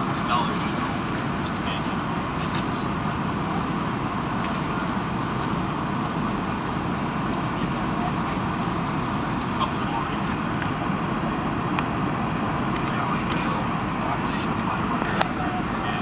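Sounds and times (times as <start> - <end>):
jet engines droning: 0.0 - 16.0.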